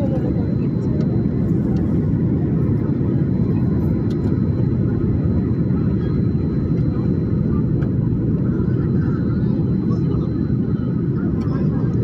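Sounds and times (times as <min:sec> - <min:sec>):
airliner cabin engine roar: 0:00.0 - 0:12.0.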